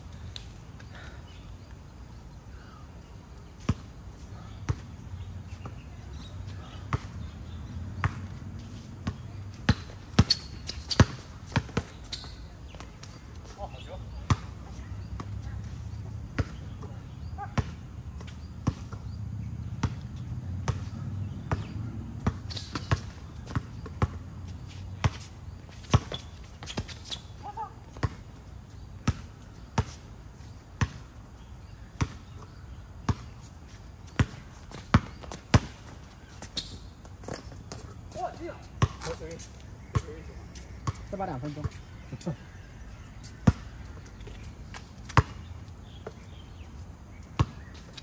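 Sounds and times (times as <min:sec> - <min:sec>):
basketball bouncing on court: 0:04.7 - 0:04.9, 0:07.9 - 0:12.4, 0:14.2 - 0:15.4, 0:16.0 - 0:24.2, 0:25.0 - 0:28.2, 0:30.8 - 0:31.0, 0:32.0 - 0:33.3, 0:34.1 - 0:35.8, 0:38.8 - 0:39.1, 0:39.9 - 0:40.2, 0:40.8 - 0:41.8, 0:43.4 - 0:43.7, 0:45.0 - 0:45.4, 0:47.4 - 0:47.7.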